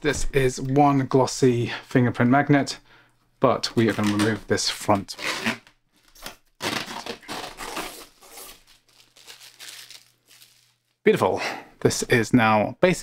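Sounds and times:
plastic film peeling off: 5.0s - 11.0s.

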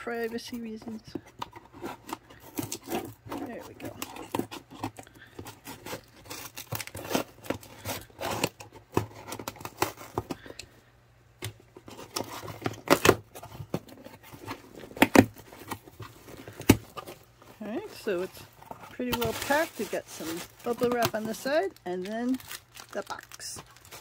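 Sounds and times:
cardboard flaps tearing: 1.8s - 10.4s, 18.9s - 24.0s.

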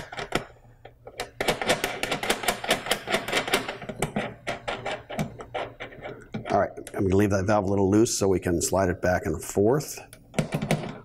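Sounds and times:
metal valve clicking and rattling: 0.0s - 7.1s.

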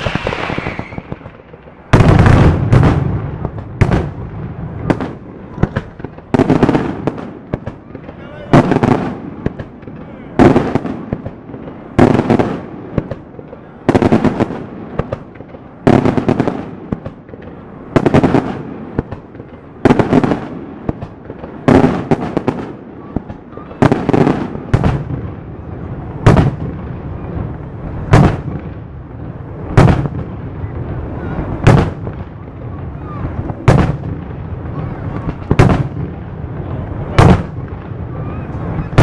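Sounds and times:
firework shells bursting: 0.0s - 4.2s.

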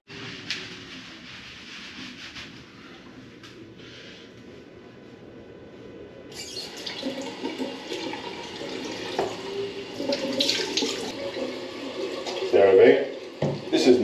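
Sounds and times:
water splashing: 6.5s - 14.0s
tap running into sink: 6.7s - 12.5s, 13.2s - 13.8s.

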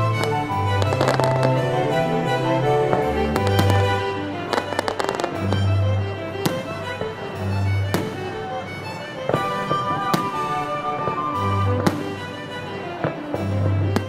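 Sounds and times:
fireworks crackling: 0.0s - 5.7s, 9.2s - 14.0s
violin background music: 0.0s - 14.0s.

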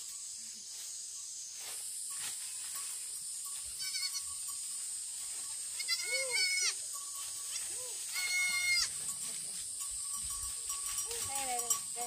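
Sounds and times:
steady high hiss: 0.0s - 11.0s
goat bleating: 3.8s - 4.3s, 5.8s - 6.8s, 7.6s - 9.0s.

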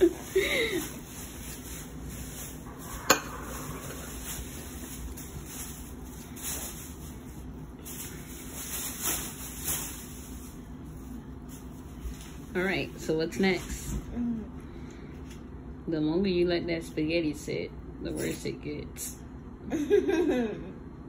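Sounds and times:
eating and handling sounds: 0.0s - 12.7s
low room hum: 0.0s - 21.0s.

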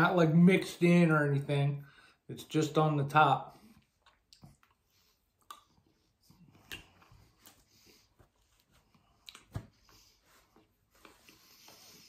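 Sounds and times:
chewing: 3.8s - 7.3s, 9.0s - 9.6s.

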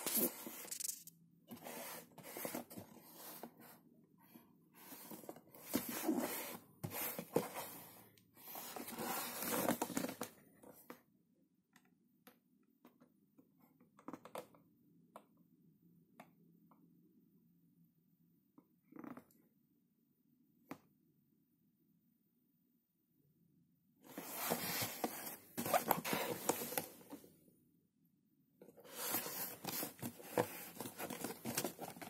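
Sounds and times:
cardboard box rustling: 1.5s - 3.5s, 4.9s - 7.8s, 8.5s - 10.3s, 24.1s - 27.2s, 28.8s - 32.0s.

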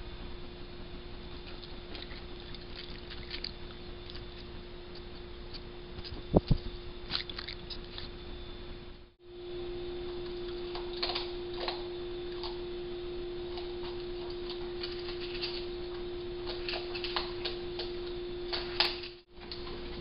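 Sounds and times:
electrical hum and hiss: 0.0s - 20.0s
raccoon crunching food: 1.4s - 8.2s, 10.2s - 12.6s, 13.4s - 19.8s.

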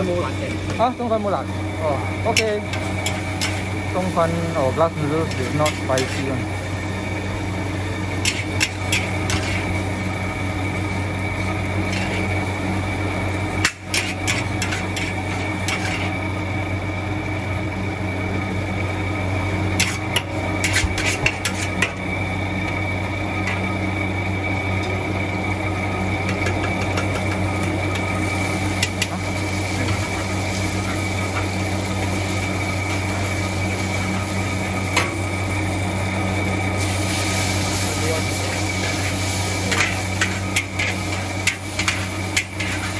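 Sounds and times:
metal spatula scraping in a wok: 2.3s - 3.8s, 5.2s - 6.3s, 8.2s - 9.8s, 11.7s - 12.4s, 13.6s - 16.2s, 19.8s - 22.0s, 36.8s - 42.9s.

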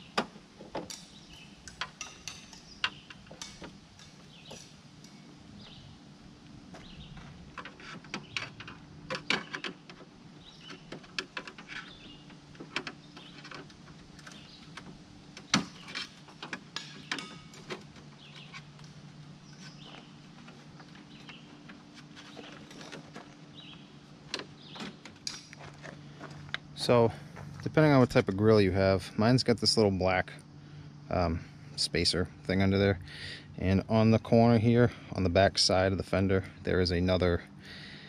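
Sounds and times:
steady low hum: 0.0s - 38.0s
hard plastic clicking and creaking: 6.8s - 19.0s.

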